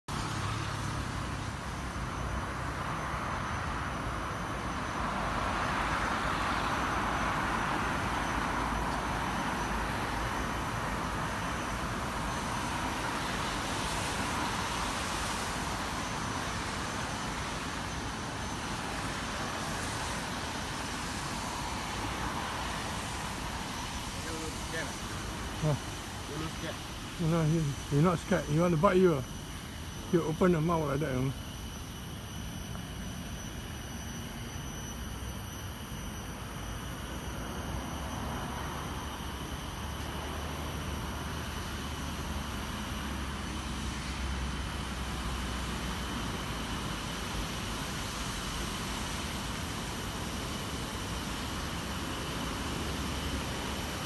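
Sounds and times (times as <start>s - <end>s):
distant road traffic: 0.1s - 54.0s
faint steady high tones: 0.3s - 54.0s
hiss: 4.7s - 30.1s, 37.4s - 54.0s.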